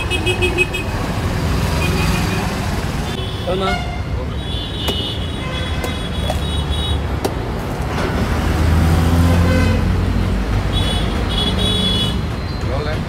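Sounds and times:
machete chopping coconut: 0:04.8 - 0:05.1, 0:07.2 - 0:07.5.

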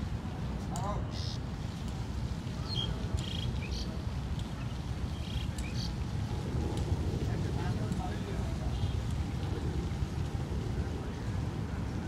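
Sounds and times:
small birds chirping: 0:00.8 - 0:01.5, 0:02.6 - 0:06.1
steady low rumble: 0:01.5 - 0:12.0.

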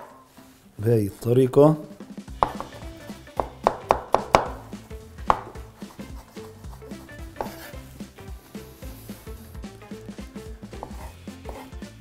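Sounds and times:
knife knocking on cutting board: 0:02.4 - 0:02.8, 0:03.4 - 0:05.7, 0:07.4 - 0:07.7.

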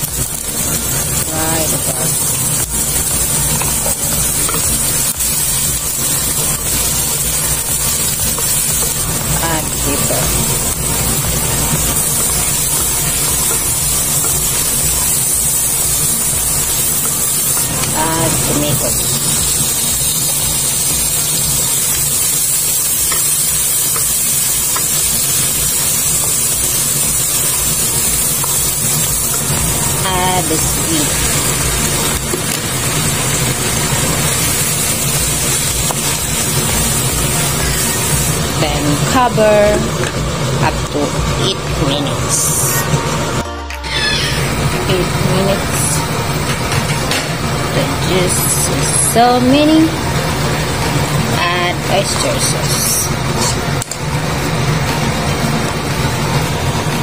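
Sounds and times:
shallots sizzling in hot oil: 0:00.0 - 0:43.3, 0:43.9 - 0:57.0.

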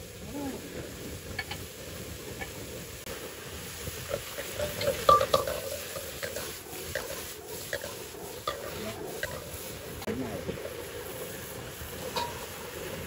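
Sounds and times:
vegetables sizzling in a wok: 0:00.0 - 0:13.0
metal spatula clanking on pan: 0:04.4 - 0:09.4, 0:12.1 - 0:12.5.

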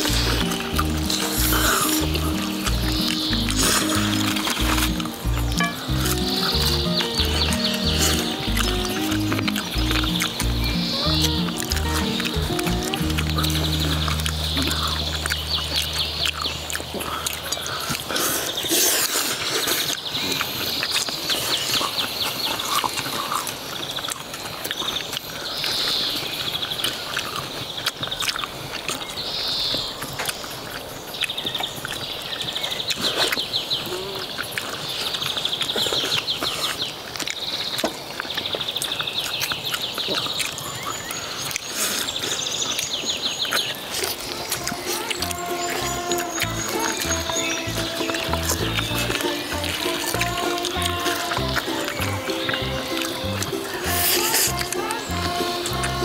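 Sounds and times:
birds chirping and trilling: 0:00.0 - 0:56.0
crunching and chewing fried chicken: 0:00.0 - 0:56.0.

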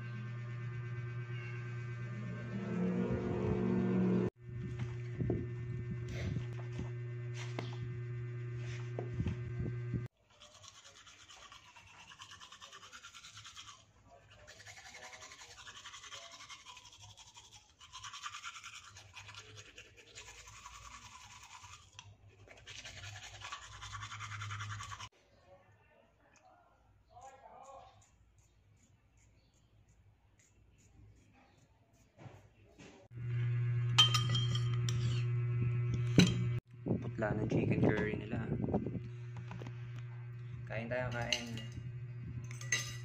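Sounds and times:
steady low hum: 0:00.0 - 0:10.1, 0:33.2 - 0:43.0
toothbrush scrubbing teeth: 0:10.1 - 0:25.1.

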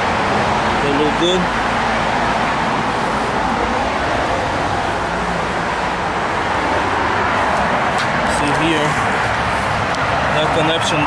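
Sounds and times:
loud rushing background noise: 0:00.0 - 0:11.0.

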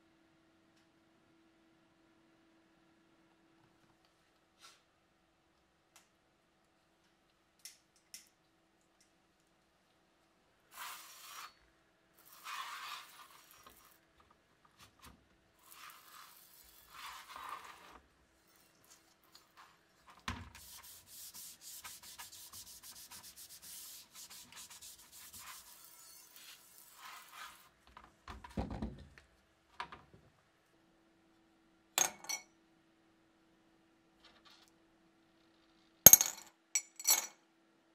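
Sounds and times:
scrubbing wet steel blade: 0:20.9 - 0:27.7.

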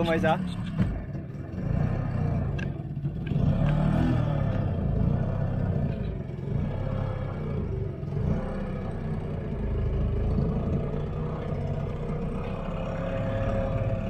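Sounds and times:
outboard motor running: 0:00.0 - 0:14.0.

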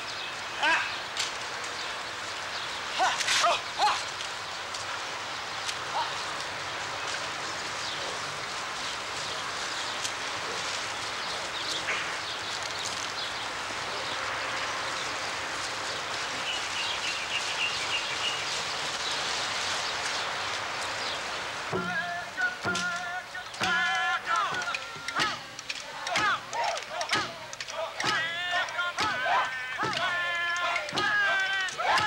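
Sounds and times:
rain-like hiss: 0:00.0 - 0:32.0
scattered ticks: 0:22.8 - 0:29.2.

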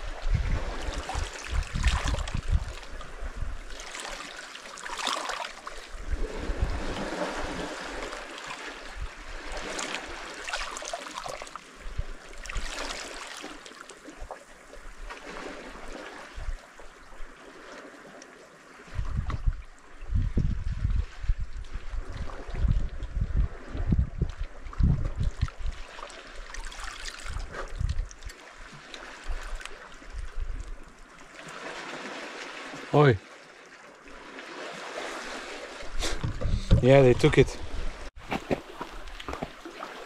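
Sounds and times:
wind rumble on microphone: 0:00.0 - 0:03.8, 0:05.9 - 0:08.1, 0:08.8 - 0:10.2, 0:11.8 - 0:12.7, 0:18.8 - 0:31.0, 0:35.8 - 0:39.5
waves lapping against rocks: 0:00.0 - 0:40.0.

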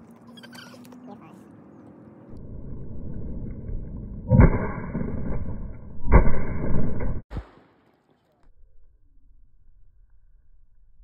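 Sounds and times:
steady low rumble: 0:02.3 - 0:07.5.

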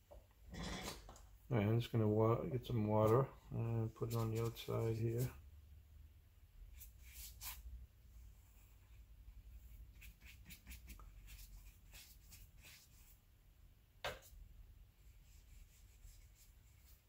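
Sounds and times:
wet brush strokes on paper: 0:04.0 - 0:05.4, 0:06.7 - 0:13.2, 0:15.0 - 0:17.0.

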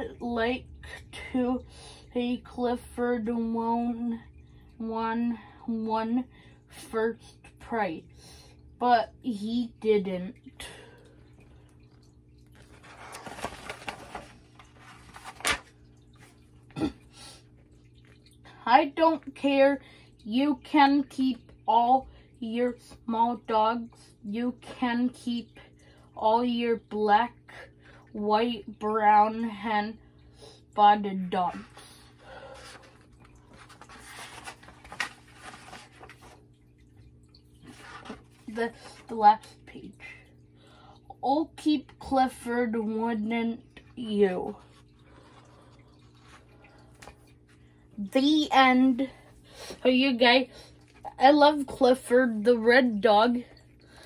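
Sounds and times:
paper pages rustling: 0:12.5 - 0:16.4, 0:32.6 - 0:36.4.

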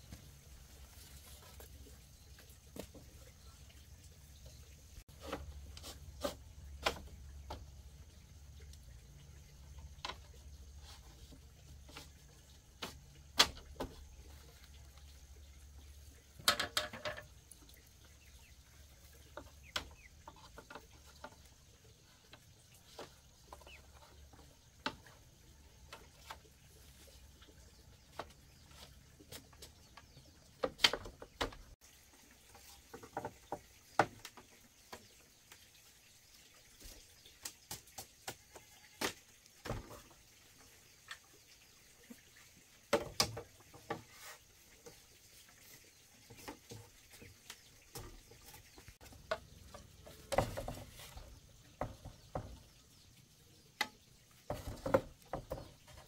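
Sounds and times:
bamboo slats rattling: 0:05.1 - 0:07.8, 0:09.6 - 0:14.7, 0:16.3 - 0:17.7, 0:19.0 - 0:27.4, 0:28.0 - 0:31.8, 0:32.6 - 0:35.0, 0:39.0 - 0:40.2, 0:42.9 - 0:45.4, 0:47.8 - 0:52.8, 0:53.8 - 0:56.0
bamboo slats knocking: 0:12.8 - 0:14.0, 0:16.4 - 0:17.3, 0:30.6 - 0:31.8.

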